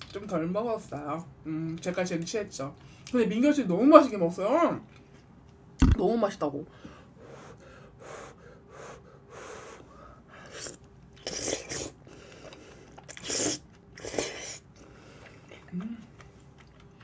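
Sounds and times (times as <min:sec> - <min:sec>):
breaths: 0:02.8 - 0:03.1, 0:06.7 - 0:10.6, 0:12.0 - 0:13.0, 0:14.8 - 0:15.5
chewing mouth sounds: 0:10.5 - 0:17.0.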